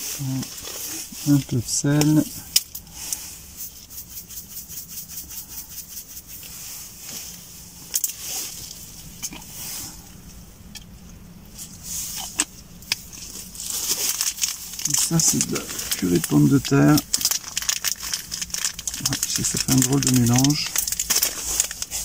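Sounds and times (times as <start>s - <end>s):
paper packets rustling: 0.0s - 7.5s, 13.0s - 22.0s
salt shaker rattling: 2.5s - 6.6s, 13.3s - 22.0s.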